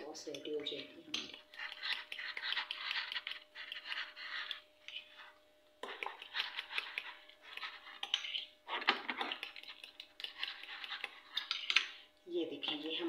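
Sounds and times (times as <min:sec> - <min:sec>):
spoon stirring thick sauce: 0:00.3 - 0:12.0.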